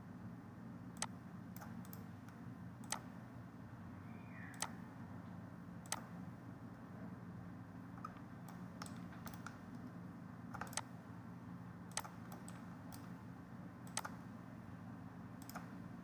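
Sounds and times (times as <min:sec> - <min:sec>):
steady low hum: 0:00.0 - 0:16.0
computer mouse clicking: 0:01.0 - 0:03.1, 0:04.5 - 0:04.8, 0:05.8 - 0:06.1, 0:08.0 - 0:10.9, 0:11.9 - 0:13.2, 0:13.8 - 0:14.2, 0:15.4 - 0:15.8.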